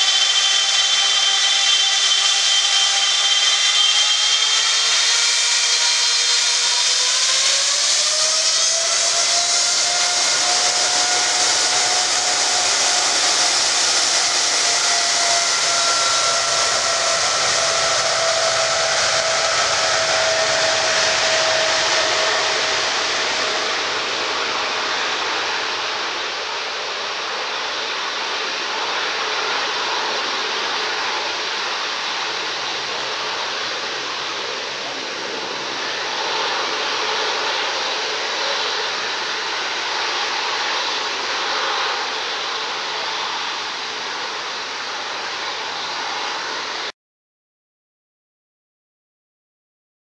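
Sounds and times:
jet engines spooling up: 0:00.0 - 0:46.9.

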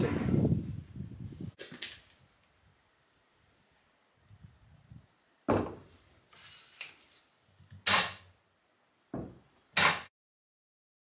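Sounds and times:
handling scrapes: 0:05.9 - 0:07.4
sharp knocks: 0:07.8 - 0:08.3, 0:09.1 - 0:10.1.

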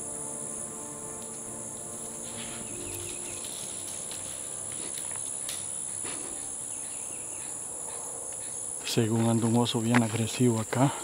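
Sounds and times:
insects chorus: 0:00.0 - 0:11.0
faint ticks: 0:01.1 - 0:06.5.

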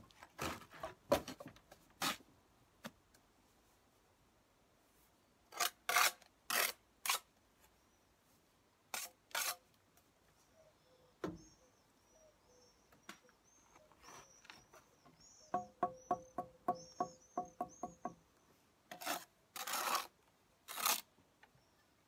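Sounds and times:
trowel scraping mortar: 0:05.5 - 0:07.3, 0:08.9 - 0:09.6, 0:18.9 - 0:21.1
birds chirping: 0:10.4 - 0:18.6.

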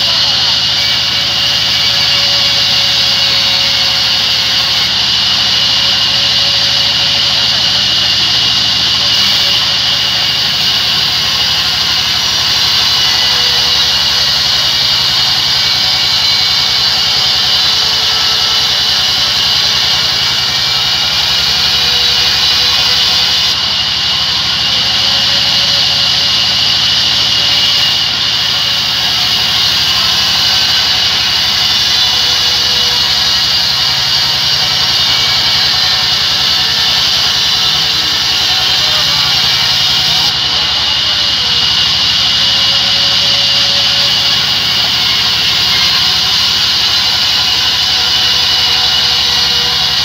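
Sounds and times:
band saw blade cutting wood: 0:00.0 - 0:50.0.

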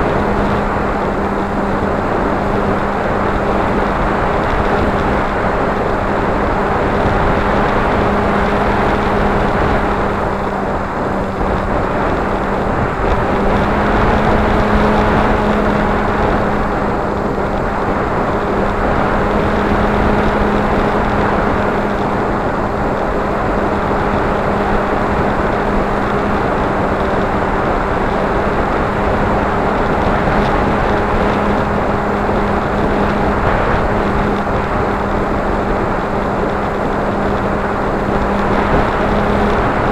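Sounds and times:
motor and propeller humming: 0:00.0 - 0:39.9
wind noise on microphone: 0:00.0 - 0:39.9.

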